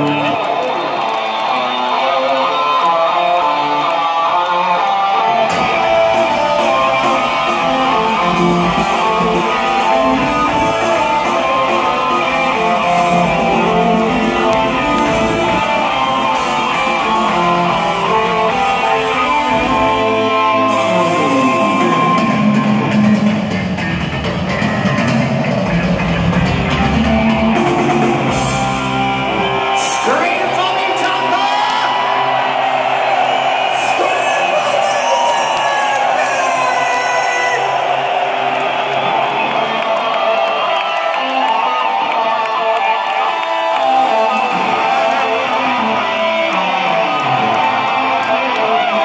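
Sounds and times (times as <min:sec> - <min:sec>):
electric guitar: 0:00.0 - 0:49.0
live rock music: 0:00.0 - 0:49.0
bass and drums: 0:05.4 - 0:30.6.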